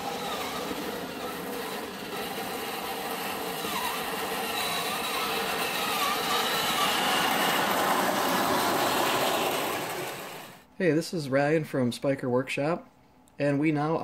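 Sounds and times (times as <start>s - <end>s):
electric motors whining: 0.0s - 10.6s.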